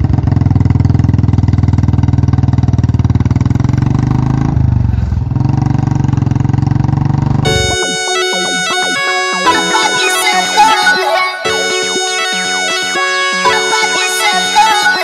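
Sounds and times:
motorcycle engine running: 0.0 - 7.5.

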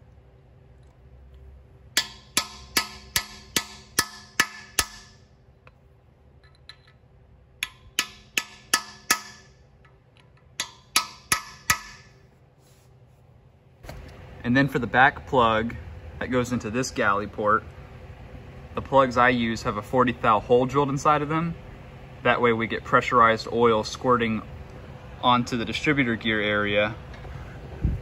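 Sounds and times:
hammer tapping steel driver: 2.0 - 5.1, 7.6 - 9.5, 10.2 - 12.1.

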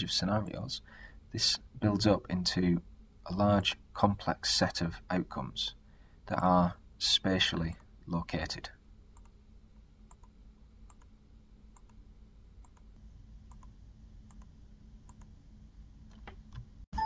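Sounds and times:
low room hum: 0.0 - 17.0
computer mouse clicks: 9.2 - 9.4, 10.1 - 11.1, 11.7 - 12.0, 12.6 - 12.9, 13.5 - 13.7, 14.3 - 14.5.

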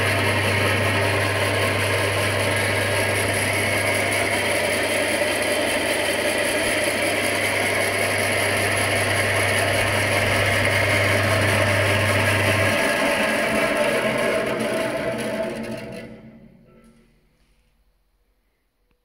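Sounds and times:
band saw running: 0.0 - 16.8
low hum: 7.4 - 17.2.

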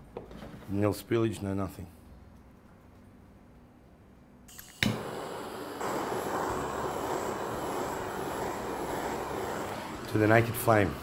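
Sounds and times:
blowtorch hissing flame: 4.5 - 11.0
blowtorch ignition click: 4.5 - 11.0.

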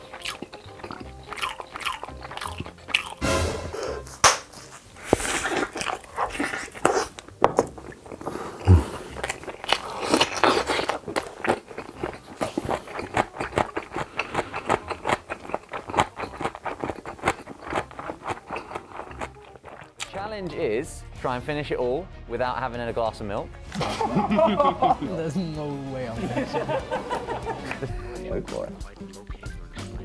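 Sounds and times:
crisp chewing crunches: 0.0 - 3.2, 4.0 - 20.1.

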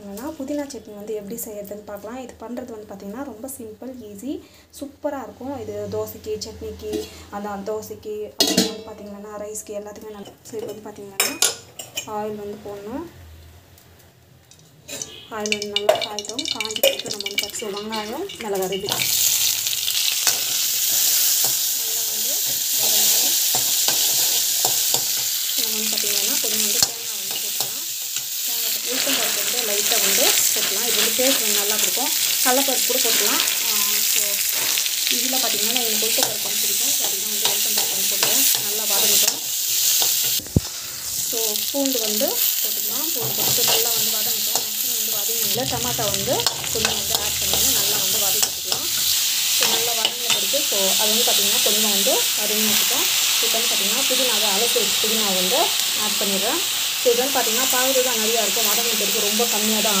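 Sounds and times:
steel spoon scraping pan: 14.6 - 21.7, 42.4 - 51.0
food sizzling in hot oil: 14.6 - 60.0.

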